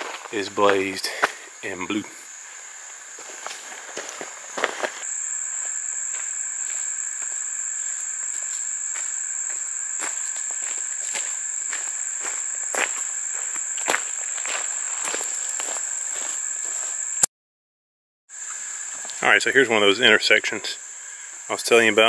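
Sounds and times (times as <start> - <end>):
footsteps on dirt trail: 0.0 - 1.5, 2.3 - 17.1
insects droning: 0.0 - 17.3, 18.3 - 22.0.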